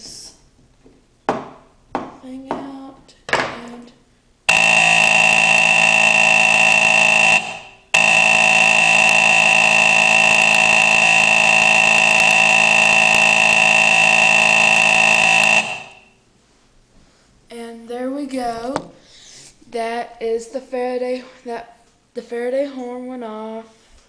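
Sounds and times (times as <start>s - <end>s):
fire alarm horn buzzing: 4.5s - 16.2s.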